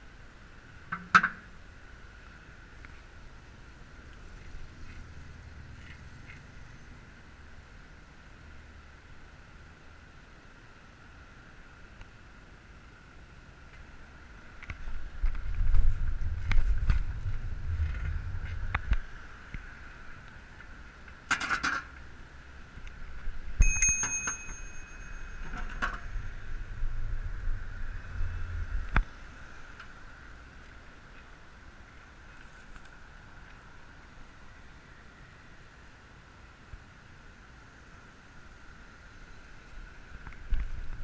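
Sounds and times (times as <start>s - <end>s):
bicycle rolling on pavement: 14.8s - 19.2s
bicycle bell ding: 23.6s - 26.4s.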